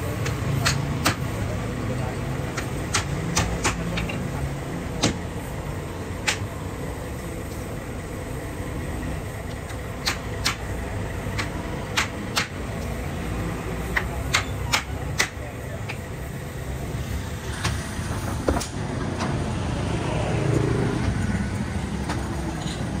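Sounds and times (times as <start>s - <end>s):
hammer striking wood: 11.4s - 12.6s.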